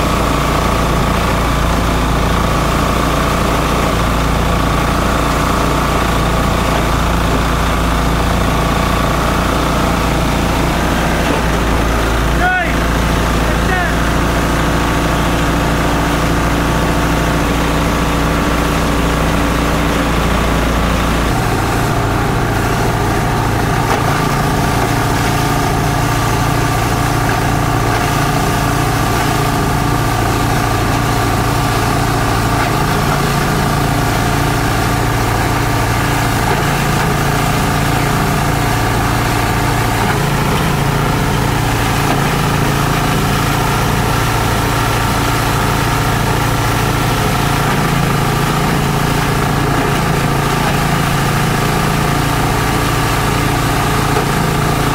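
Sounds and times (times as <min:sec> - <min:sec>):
shredder machine drone: 0:00.0 - 0:54.9.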